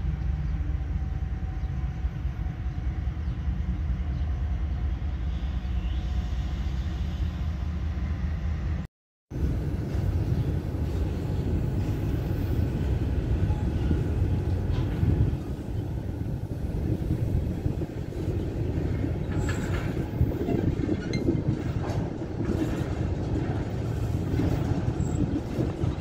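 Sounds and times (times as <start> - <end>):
freight train wheels rumbling on rail: 0.0 - 26.0.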